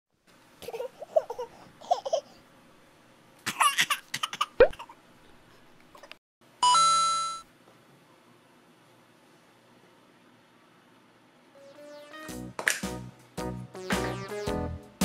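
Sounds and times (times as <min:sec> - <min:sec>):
baby giggling and babbling: 0:00.6 - 0:02.3.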